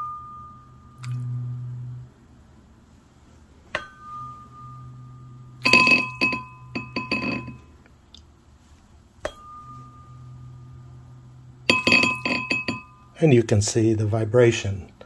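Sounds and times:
tuning fork ringing: 0.0s - 2.4s, 3.7s - 7.8s, 9.2s - 13.3s
tuning fork buzzing in water: 0.0s - 2.5s, 3.7s - 7.8s, 9.2s - 13.3s
glassy clinks: 3.8s - 7.7s, 9.3s - 10.5s, 11.7s - 13.2s.

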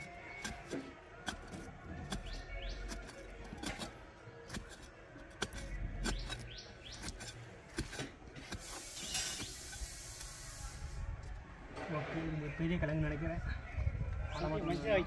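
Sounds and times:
birds chirping: 0.0s - 4.5s, 5.2s - 7.8s, 12.1s - 15.0s
digging knocks and scraping in soil: 0.0s - 12.6s.

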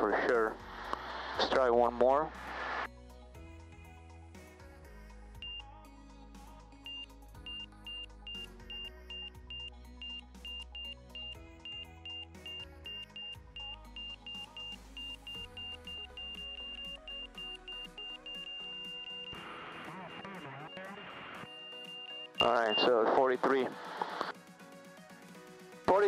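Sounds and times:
background music: 0.0s - 26.0s
stall warning beeping: 6.9s - 23.0s.

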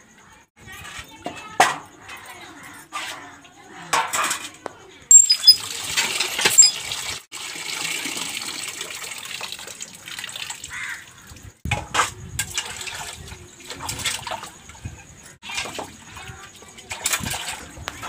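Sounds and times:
water gushing into metal pot: 5.1s - 14.8s, 15.4s - 18.0s.

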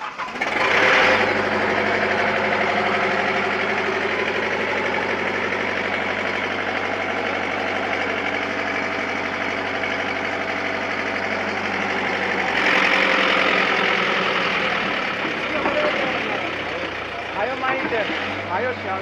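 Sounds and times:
excavator diesel engine idling: 0.0s - 19.0s.

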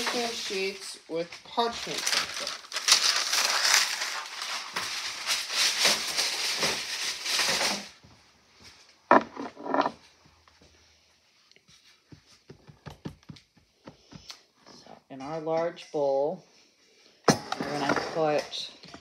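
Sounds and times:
paper rustling and tearing: 1.5s - 8.0s.

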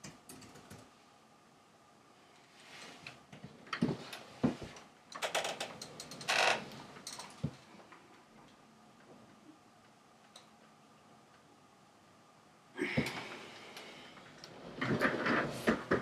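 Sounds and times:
office chair creaking: 3.8s - 7.5s, 14.4s - 16.0s
rubber clothing rubbing and squeaking: 14.7s - 16.0s.

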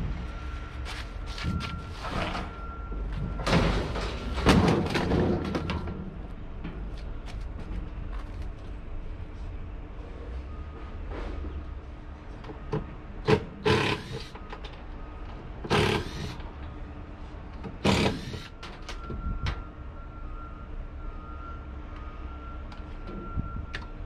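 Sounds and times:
low engine rumble: 0.0s - 13.3s.

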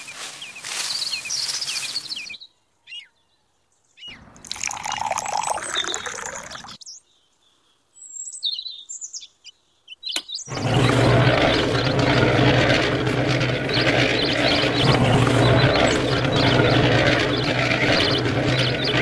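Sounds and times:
birds chirping: 0.0s - 19.0s
water pouring and splashing: 4.4s - 6.8s.

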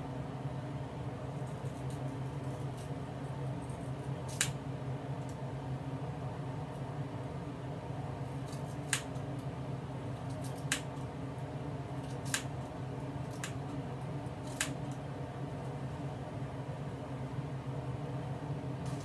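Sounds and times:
steady low hum: 0.0s - 19.0s
scissors snipping hair: 14.4s - 15.0s.

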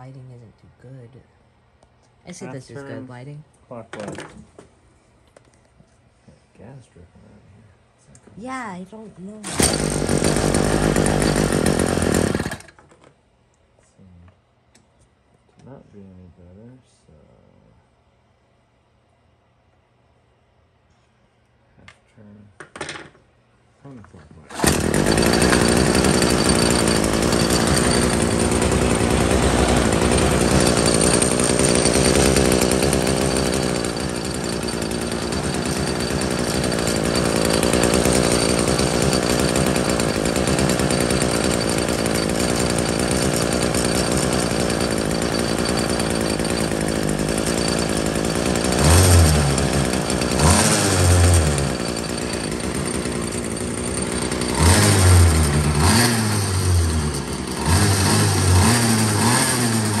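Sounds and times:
small engine revving: 9.4s - 12.7s, 24.5s - 60.0s.

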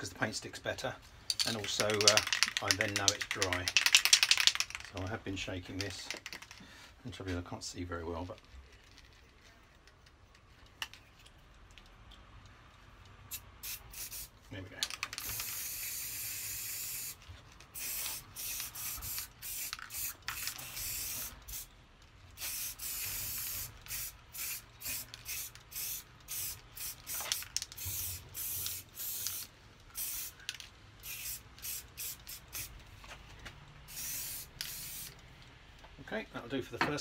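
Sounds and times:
aerosol spray can hissing: 13.3s - 14.3s, 15.1s - 21.7s, 22.4s - 32.7s, 33.9s - 35.2s.

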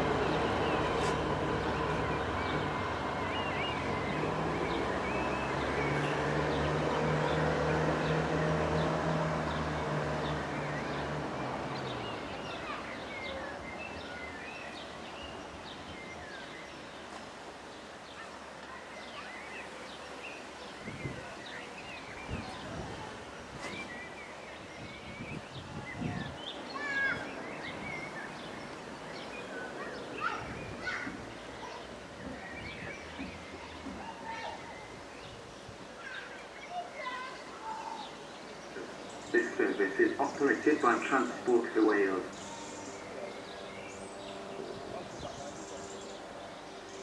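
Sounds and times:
diesel train engine hum: 0.0s - 12.9s, 38.7s - 47.0s
small birds chirping: 0.0s - 47.0s.

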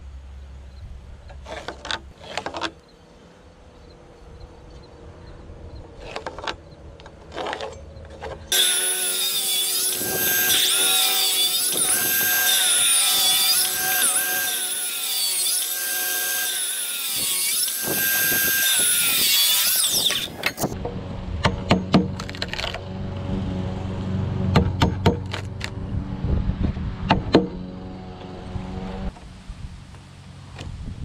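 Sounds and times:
circular saw cutting wood: 7.4s - 20.8s.

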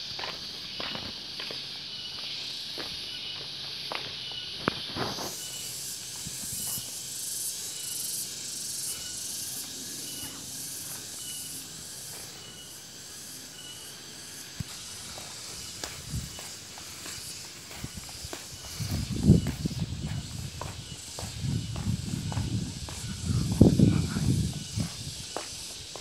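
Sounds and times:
insect chirps: 0.0s - 26.0s
insects hissing: 0.0s - 26.0s
footsteps thudding: 14.6s - 26.0s.

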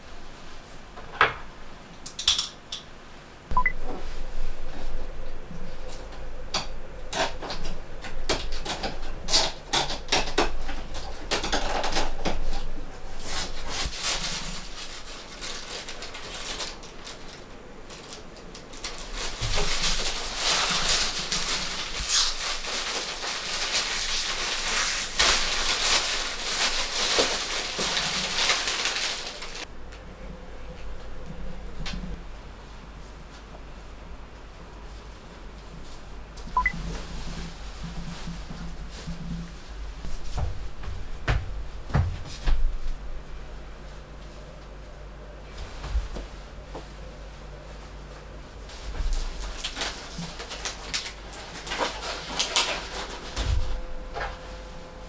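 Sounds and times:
knife slitting packing tape: 8.3s - 12.6s, 18.0s - 29.7s
packaging rustling: 10.9s - 29.7s, 48.7s - 53.9s.

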